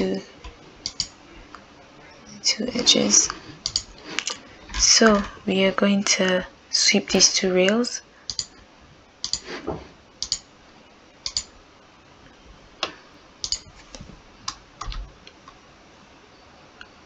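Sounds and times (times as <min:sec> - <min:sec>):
computer mouse clicking: 0:00.8 - 0:01.2, 0:03.6 - 0:04.3, 0:08.3 - 0:08.5, 0:09.2 - 0:09.5, 0:10.2 - 0:10.5, 0:11.2 - 0:11.5, 0:13.4 - 0:13.7.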